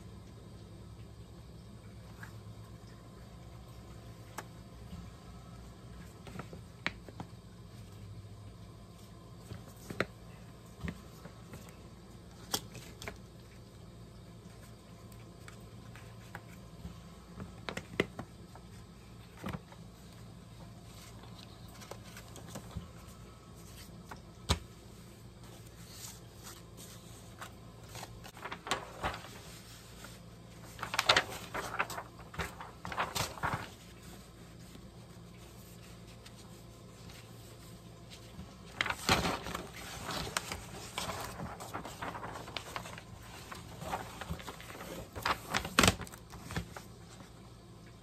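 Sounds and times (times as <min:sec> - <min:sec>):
paper and card rustling: 0:20.8 - 0:24.7, 0:25.4 - 0:47.3.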